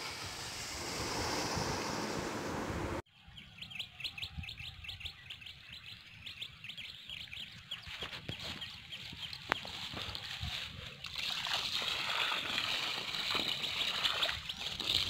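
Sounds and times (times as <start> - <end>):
steady rushing noise: 0.0 - 3.0.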